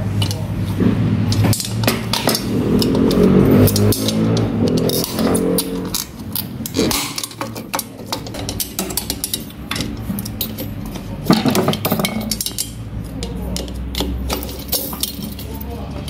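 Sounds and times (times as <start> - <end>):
hand tools and parts clinking: 0.0 - 16.0.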